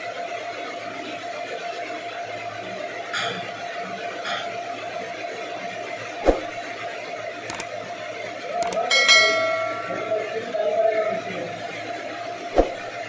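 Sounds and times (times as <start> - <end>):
sharp clicks: 8.6 - 8.8
notification bell chime: 8.9 - 10.4.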